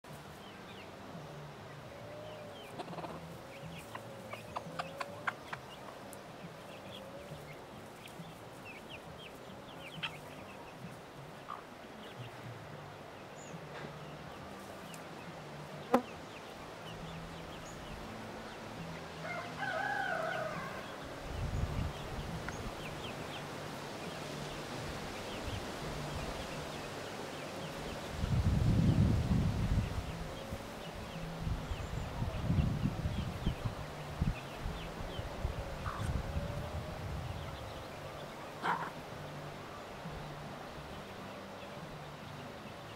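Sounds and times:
hen clucking softly: 2.6 - 6.0, 38.6 - 39.0
loud chicken call: 19.2 - 21.0
wind rumble on microphone: 19.6 - 27.0, 27.6 - 38.4.

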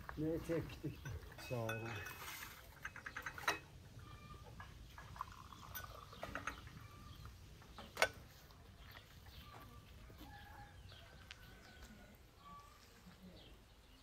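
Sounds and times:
birds calling: 0.0 - 14.0
glassware clinking: 0.8 - 7.0
tea pouring into glass: 5.0 - 6.2.

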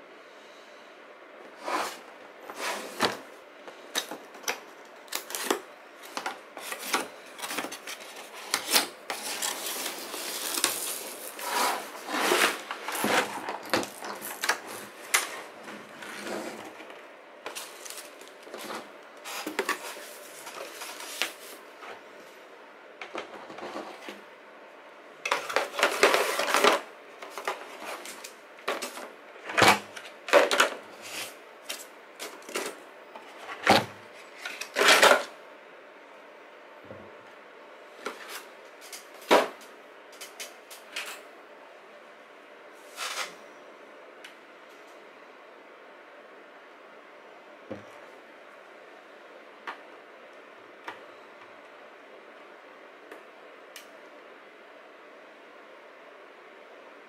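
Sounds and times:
packaging rustling: 3.9 - 16.1, 16.8 - 21.6.

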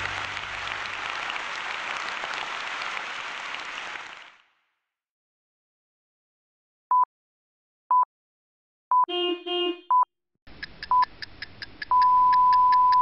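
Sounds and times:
long steady beep: 11.9 - 13.0.

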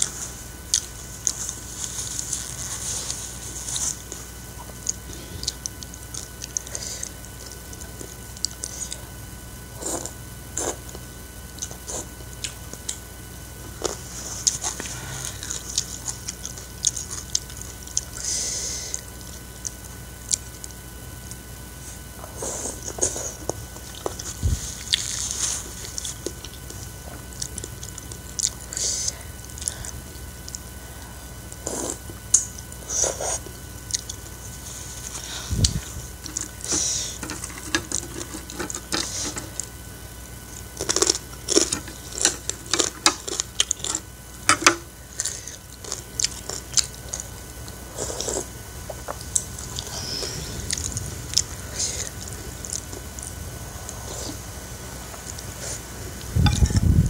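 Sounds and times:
wet chewing: 0.7 - 9.1, 13.6 - 39.8, 40.5 - 57.0
slurping noodles: 9.7 - 10.9, 31.6 - 32.2, 45.1 - 56.0.

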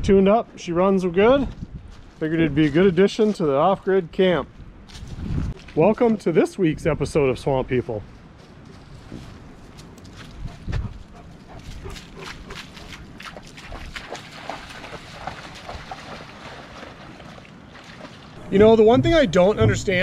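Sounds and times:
dog splashing through water: 11.2 - 18.4.

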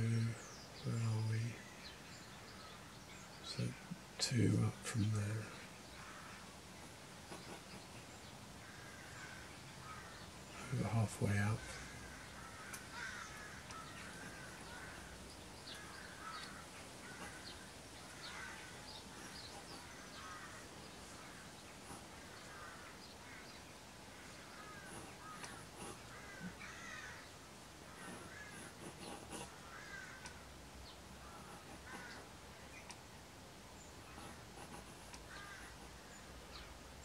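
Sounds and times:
faint crows cawing: 0.0 - 37.0
pencil scratching on board: 7.3 - 8.0, 28.0 - 29.6, 31.3 - 32.2, 34.1 - 35.9.

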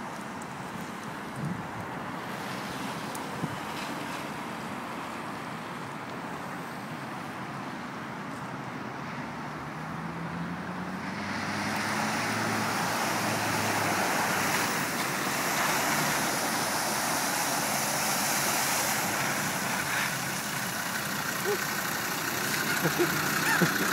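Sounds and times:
car engine rising in pitch: 9.5 - 23.9
water spraying from tyres: 11.0 - 23.9.

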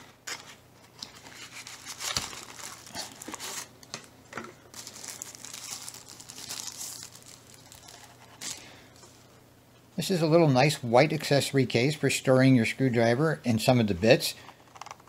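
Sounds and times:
packaging wrap crinkling: 0.2 - 9.3.

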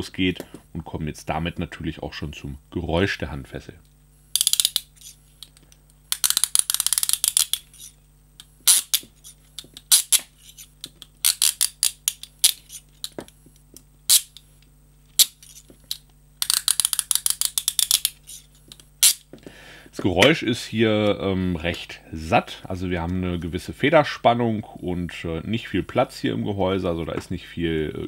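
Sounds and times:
handcuff ratchet clicking: 4.4 - 5.2, 6.1 - 7.9, 9.8 - 13.2, 15.2 - 19.2.

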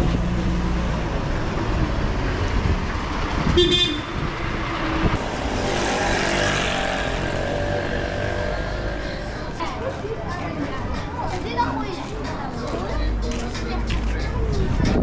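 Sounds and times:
vehicle engine rumbling: 0.0 - 11.0
car horn toot: 3.5 - 4.2.

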